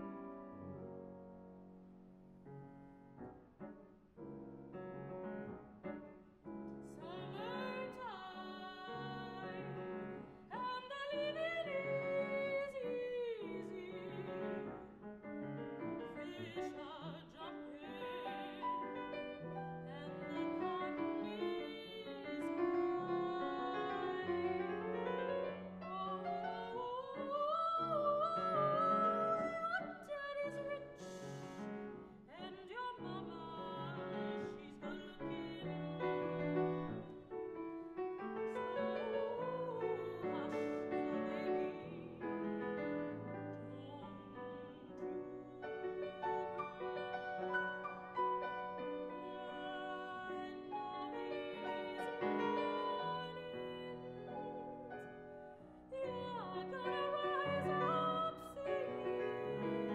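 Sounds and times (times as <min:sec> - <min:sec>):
grand piano accompaniment: 0:00.0 - 0:59.9
soprano voice singing jazz: 0:06.8 - 0:09.8, 0:10.5 - 0:14.8, 0:16.0 - 0:36.5, 0:38.4 - 0:42.5, 0:43.4 - 0:47.2, 0:48.8 - 0:54.9, 0:55.9 - 0:59.9.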